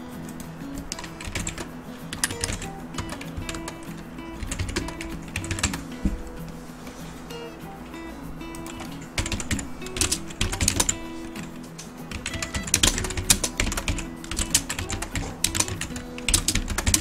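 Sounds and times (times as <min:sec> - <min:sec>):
background music: 0:00.0 - 0:17.0
typing on computer keyboard: 0:00.8 - 0:05.9, 0:08.6 - 0:17.0.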